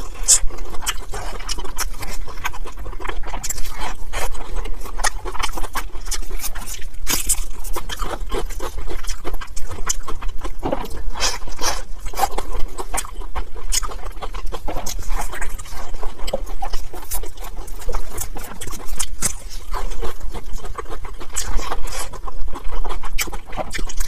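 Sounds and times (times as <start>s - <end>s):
chewing and mouth sounds: 0.0s - 24.0s.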